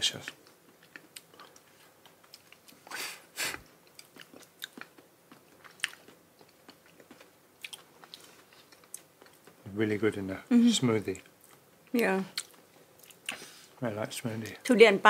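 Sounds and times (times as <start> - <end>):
wet mouth chewing clicks: 3.8 - 9.6, 12.3 - 13.4.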